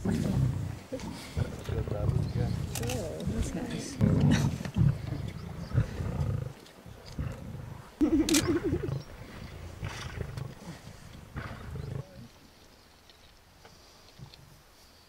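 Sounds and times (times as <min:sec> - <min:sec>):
lions growling: 0:00.0 - 0:12.4.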